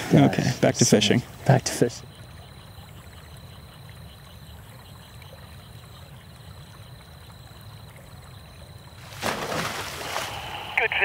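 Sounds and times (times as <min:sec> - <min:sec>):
flowing river water: 0:00.0 - 0:11.0.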